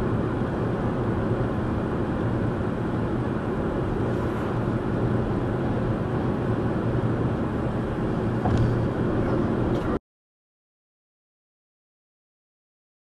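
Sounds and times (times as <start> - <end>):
car cabin engine and road noise: 0.0 - 10.0.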